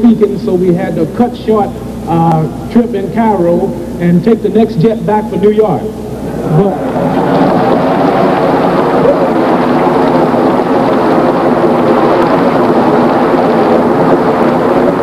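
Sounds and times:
crowd applauding and cheering: 6.4 - 15.0.

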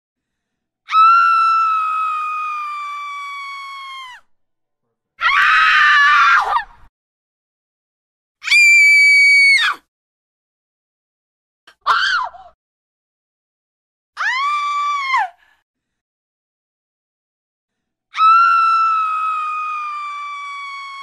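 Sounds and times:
woman screaming: 0.9 - 4.2, 18.2 - 21.0.

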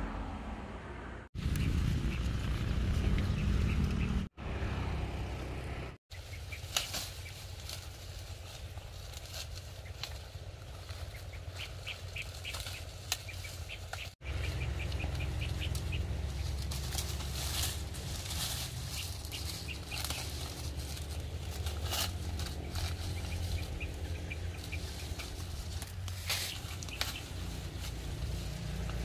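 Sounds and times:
dry corn plants rustling: 1.4 - 4.0, 6.1 - 29.0
wind rumble on microphone: 1.4 - 4.3
bird chirps: 3.2 - 4.3, 9.7 - 17.3, 18.2 - 21.8, 22.4 - 28.0.

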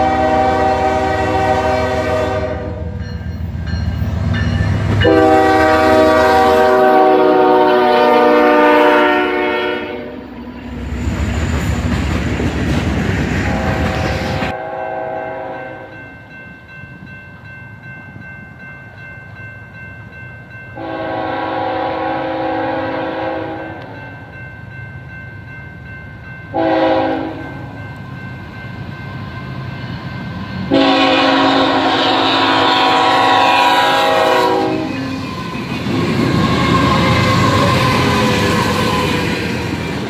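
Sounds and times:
locomotive air horn blasts: 0.0 - 3.0, 5.0 - 10.2, 13.4 - 15.9, 20.8 - 24.0, 26.5 - 27.4, 30.7 - 35.1
train wheels rumbling on rails: 0.0 - 14.6, 15.4 - 40.0.

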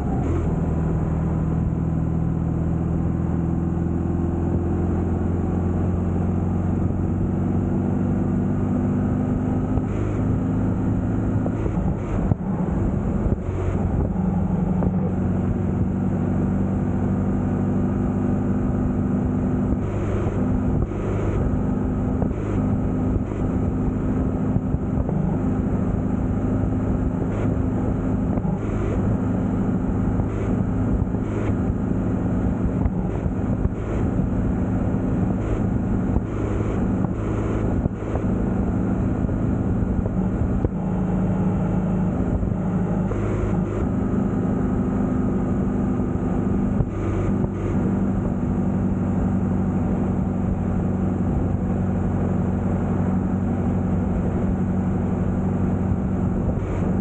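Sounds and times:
road and wind noise: 0.0 - 57.0
vehicle engine running: 0.0 - 57.0.

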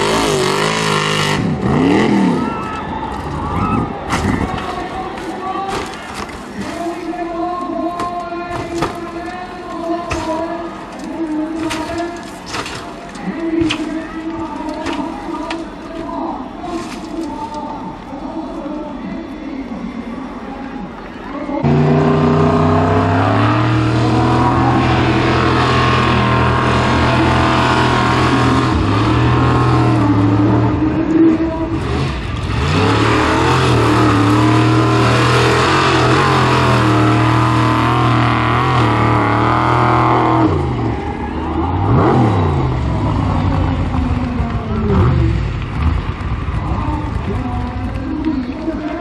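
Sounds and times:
car engine at high revs: 0.0 - 2.6, 21.6 - 41.0, 41.6 - 46.5.

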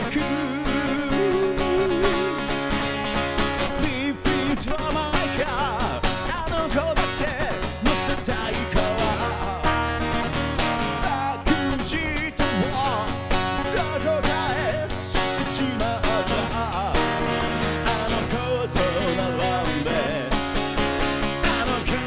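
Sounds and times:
man singing rock song: 0.0 - 22.0
strummed guitar: 0.0 - 22.0.

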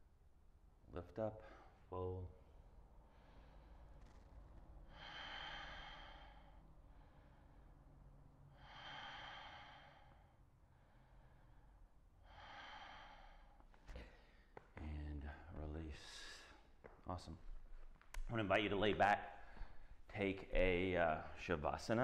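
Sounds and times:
man breathing slowly: 2.9 - 14.8, 19.3 - 20.1.

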